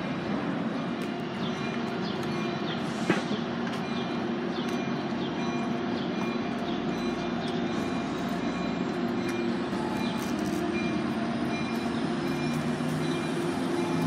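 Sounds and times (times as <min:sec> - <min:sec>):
train engine drone: 0:00.0 - 0:14.0.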